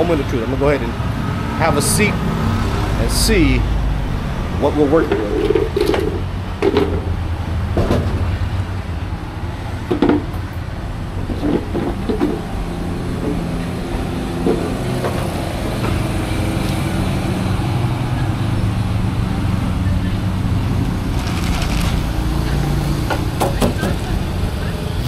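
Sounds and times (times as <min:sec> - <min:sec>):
street traffic engine hum: 0:00.0 - 0:25.0.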